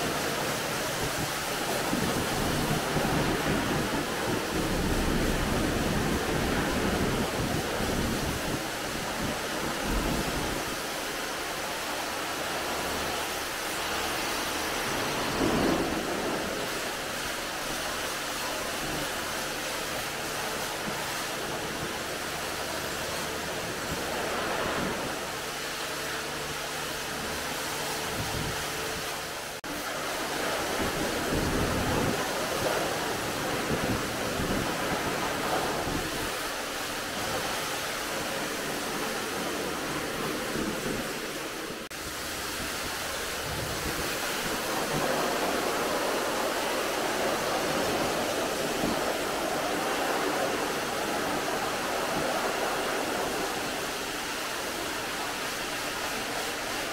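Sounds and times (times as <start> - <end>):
pressure washer spraying water: 0.0 - 56.9.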